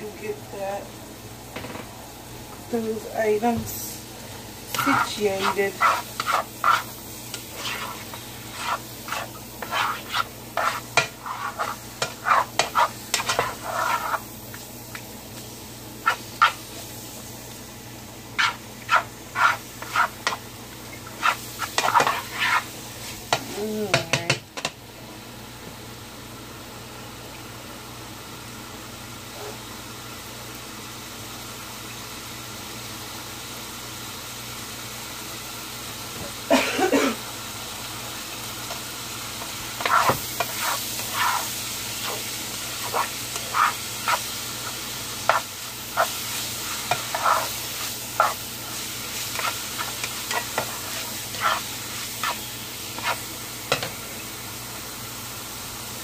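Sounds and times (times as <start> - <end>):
meat sizzling in a frying pan: 0.0 - 56.0
plastic spoon scraping a pan: 4.7 - 14.2, 18.4 - 20.4, 21.1 - 22.7, 39.8 - 48.4, 49.1 - 53.2.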